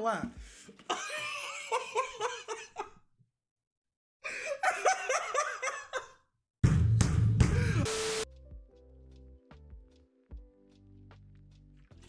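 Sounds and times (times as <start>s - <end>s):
man laughing hard: 0.9s - 3.0s, 4.3s - 6.2s.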